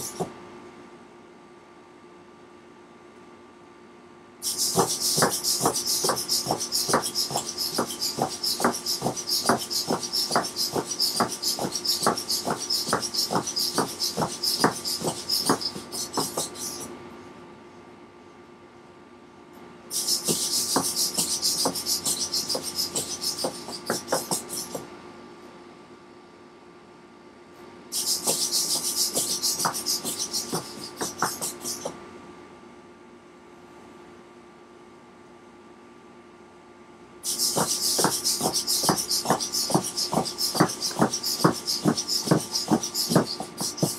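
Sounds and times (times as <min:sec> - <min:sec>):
robot steps ticking on floor: 0:04.7 - 0:16.6, 0:28.2 - 0:31.9, 0:37.5 - 0:43.9.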